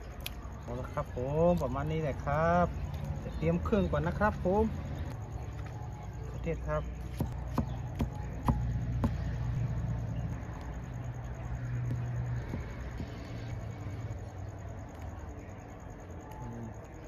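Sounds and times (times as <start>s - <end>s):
knife chopping on wooden board: 7.1s - 9.3s, 11.9s - 13.3s.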